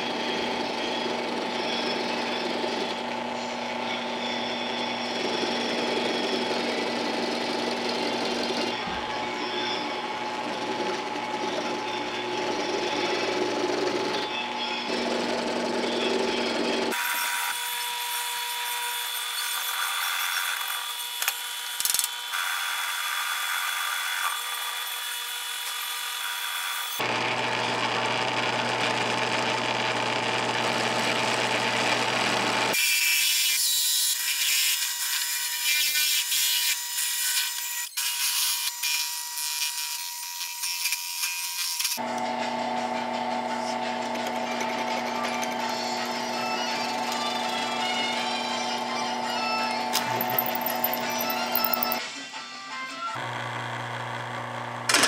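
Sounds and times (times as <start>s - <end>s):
drill press motor whine: 0.0s - 17.6s, 18.2s - 32.8s, 41.9s - 52.0s, 53.2s - 55.0s
drill bit cutting wood: 0.0s - 42.2s, 43.4s - 52.0s, 53.2s - 55.0s.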